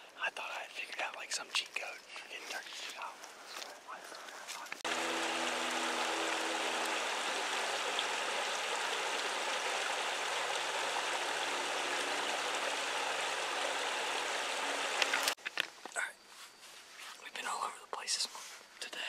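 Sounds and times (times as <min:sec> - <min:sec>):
creek flowing over rocks: 0:04.8 - 0:15.4.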